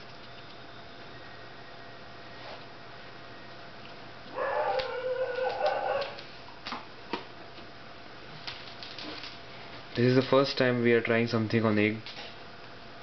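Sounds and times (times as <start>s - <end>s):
steady low hum: 0.0s - 13.0s
animal call: 4.3s - 6.2s.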